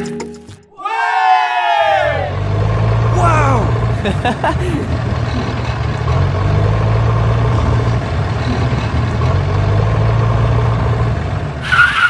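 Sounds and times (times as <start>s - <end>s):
diesel tractor engine chugging: 2.2s - 11.7s.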